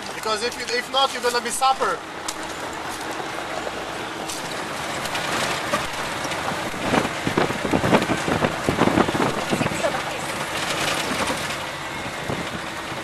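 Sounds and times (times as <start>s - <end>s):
vehicle cabin rushing noise: 0.0s - 13.0s
knocks and rattles over stones: 4.2s - 11.7s.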